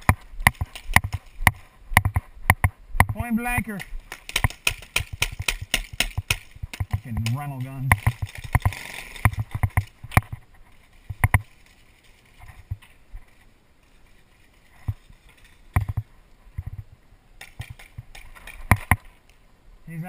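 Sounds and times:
paintball markers firing: 0:03.8 - 0:09.9.

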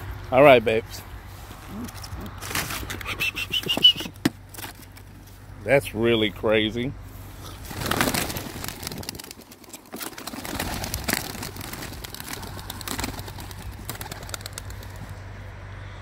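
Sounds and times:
pigeon wing flaps and scuffles: 0:07.6 - 0:15.2.

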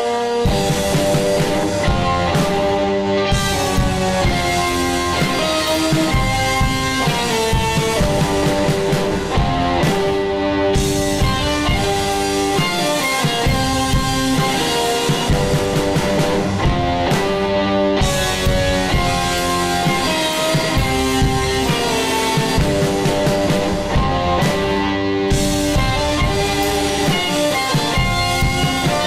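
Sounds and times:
drum kit playing: 0:00.0 - 0:29.0
psychedelic rock guitar: 0:00.0 - 0:29.0.

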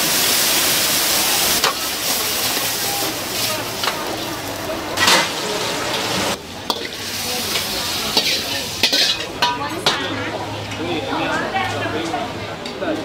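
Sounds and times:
greens sizzling in a wok: 0:00.0 - 0:10.8
metal ladle scraping wok: 0:01.6 - 0:10.8.

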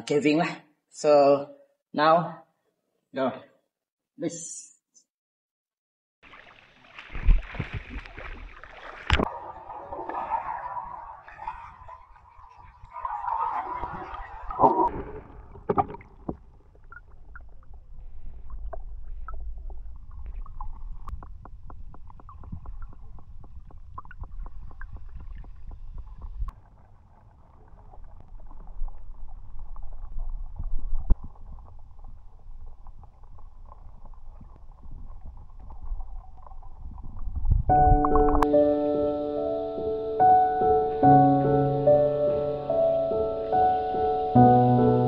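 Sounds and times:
swimmer bubbling and splashing: 0:06.2 - 0:37.5
underwater rumble of moving water: 0:06.3 - 0:38.4
small underwater clicks and crackles: 0:14.6 - 0:38.4.

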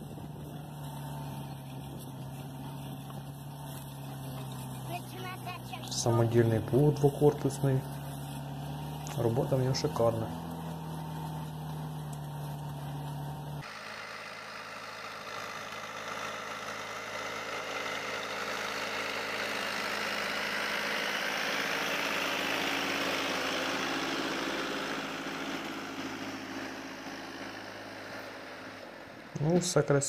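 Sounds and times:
tractor engine running under load: 0:00.0 - 0:30.0.

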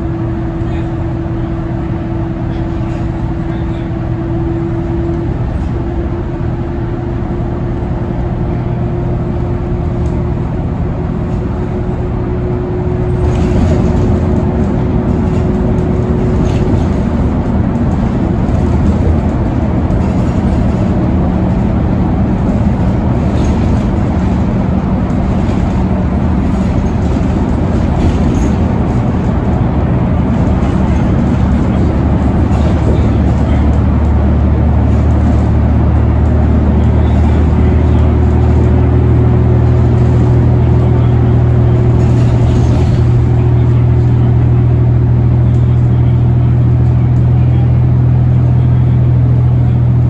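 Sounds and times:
bus engine drone with faint whine: 0:00.0 - 0:50.0.

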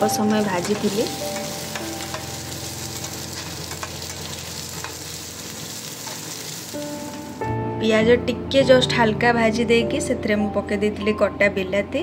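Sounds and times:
onions sizzling in hot oil: 0:00.0 - 0:07.5
spatula scraping and tapping pan: 0:03.0 - 0:05.2.

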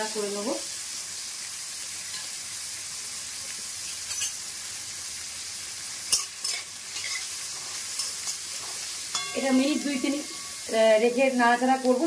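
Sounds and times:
vegetables sizzling in hot oil: 0:00.0 - 0:12.0
metal spoon scraping a wok: 0:06.1 - 0:10.7.

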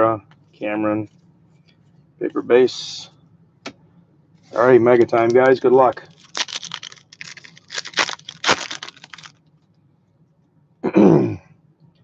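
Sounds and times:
wrapper tearing and crinkling: 0:06.0 - 0:09.4.

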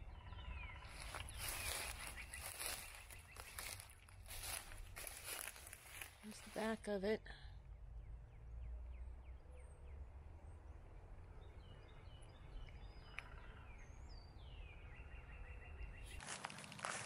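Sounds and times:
small bird chirping: 0:00.0 - 0:06.8
footsteps: 0:00.9 - 0:06.8, 0:16.2 - 0:17.0.

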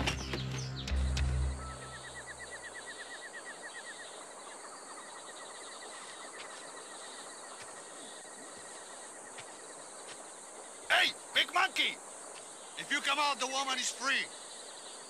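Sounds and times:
birds calling: 0:00.0 - 0:15.0
insects calling: 0:00.0 - 0:15.0.

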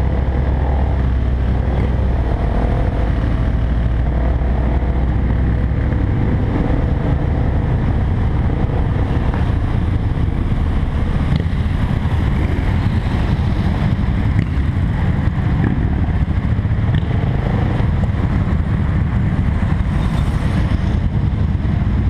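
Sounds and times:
motorcycle engines at low speed: 0:00.0 - 0:22.0.

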